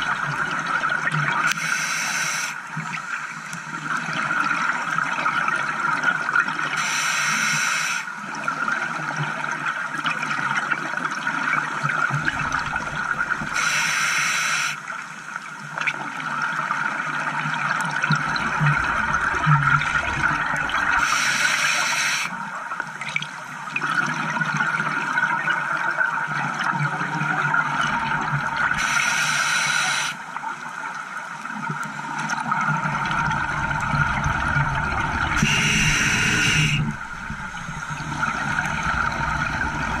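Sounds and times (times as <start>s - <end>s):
hissing regulator breath: 1.5s - 2.6s, 6.8s - 8.1s, 13.6s - 14.8s, 21.0s - 22.3s, 28.8s - 30.2s, 35.3s - 40.0s
exhaled bubbles gurgling: 8.3s - 13.8s, 15.9s - 21.7s, 31.4s - 40.0s.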